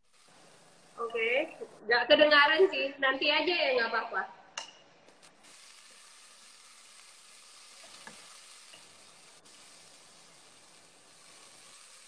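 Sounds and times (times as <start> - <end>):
food sizzling in a pan: 0.0 - 2.7, 4.6 - 12.0
spatula scraping and tapping pan: 4.6 - 5.2, 7.7 - 9.0.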